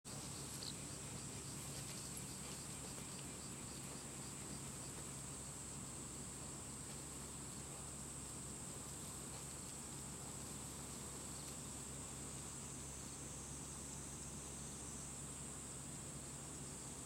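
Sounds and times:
faint low hum: 0:00.1 - 0:17.0
insect chorus: 0:00.1 - 0:17.0.

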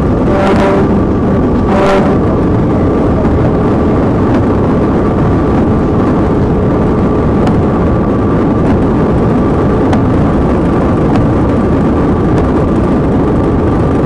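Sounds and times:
car road and engine noise: 0:00.0 - 0:14.0
high whine: 0:00.0 - 0:14.0.

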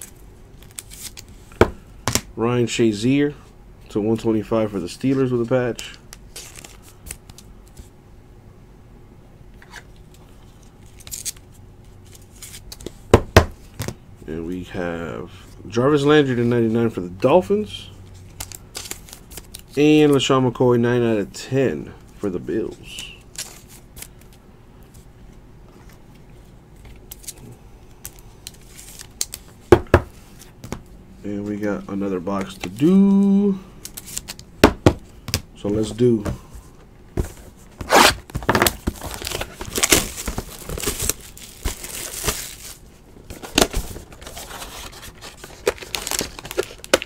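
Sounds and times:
cards sliding and rustling: 0:06.3 - 0:07.9, 0:28.1 - 0:30.8, 0:37.2 - 0:47.0.

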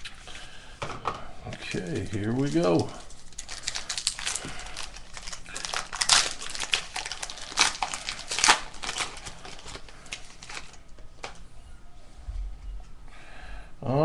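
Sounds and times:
foil wrapper crinkling and tearing: 0:01.6 - 0:11.4.

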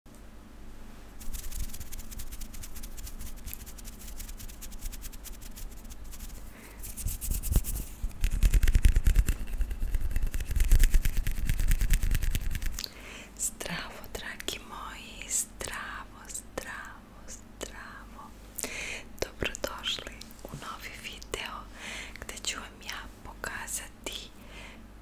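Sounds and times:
hands rubbing together: 0:01.2 - 0:12.8
fingers rubbing with crackly clicks: 0:01.2 - 0:12.9, 0:14.0 - 0:14.7.

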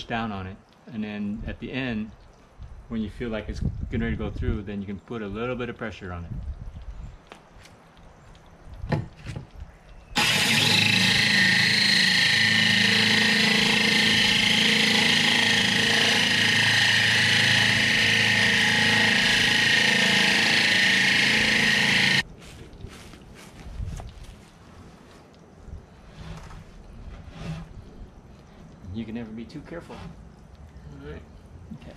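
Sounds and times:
drill hole saw grinding glass: 0:10.2 - 0:22.2.

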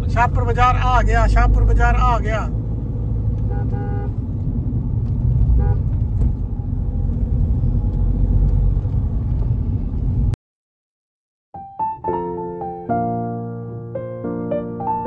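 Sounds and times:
car engine and road noise: 0:00.0 - 0:10.4.

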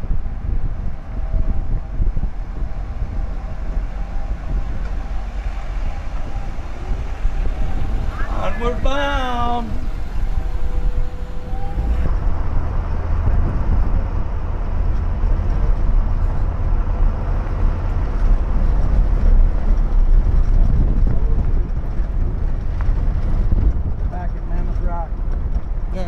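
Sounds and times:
vehicle interior engine rumble: 0:00.0 - 0:26.0.

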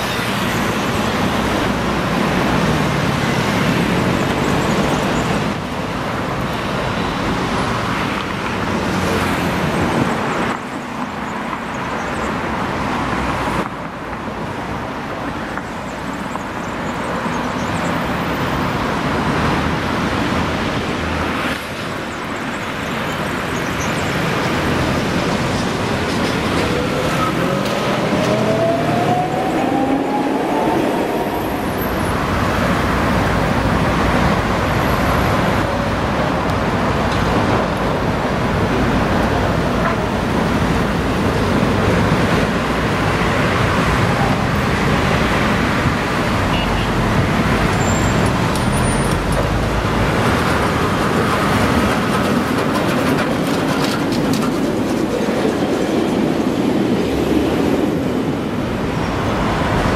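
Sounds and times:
city street traffic: 0:00.0 - 0:59.9
tram passing close by: 0:00.0 - 0:59.9
tram electric motors whining: 0:25.2 - 0:32.4.

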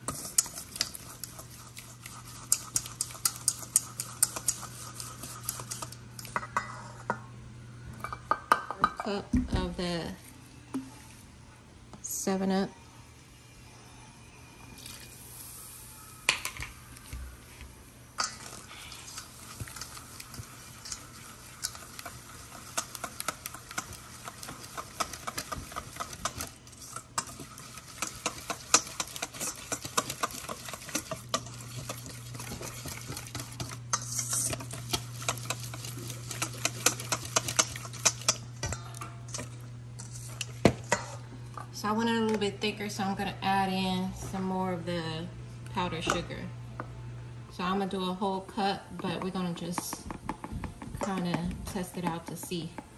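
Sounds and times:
low steady hum: 0:00.0 - 0:52.9
utensil clicking against bowl: 0:34.9 - 0:38.4.

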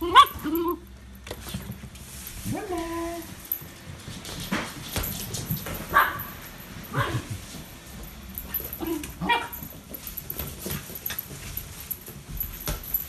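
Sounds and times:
dog yipping: 0:00.0 - 0:00.8, 0:05.9 - 0:06.3, 0:08.8 - 0:09.6
dog whining: 0:00.0 - 0:00.9, 0:02.5 - 0:03.4.

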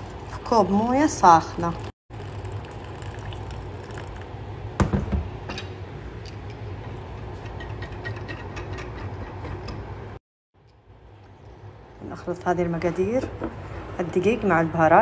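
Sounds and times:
water pouring into glass jug: 0:01.5 - 0:04.3.

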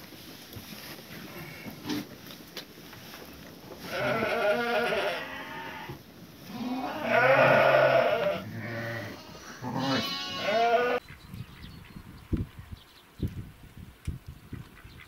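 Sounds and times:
sheep bleating: 0:03.8 - 0:11.0.

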